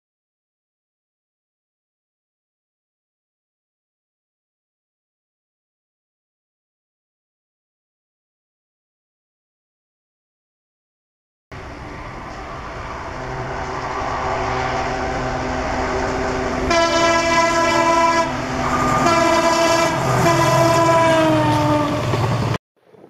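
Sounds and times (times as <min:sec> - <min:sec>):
diesel locomotive engine running: 0:11.5 - 0:22.6
train rumbling on rails: 0:11.5 - 0:22.6
train air horn blasts: 0:16.5 - 0:22.1.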